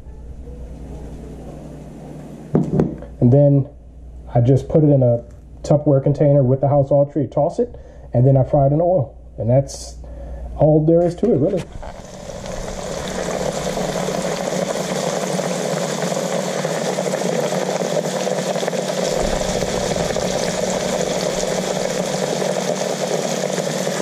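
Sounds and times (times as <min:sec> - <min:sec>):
fish deep-frying in oil: 0:11.9 - 0:24.0.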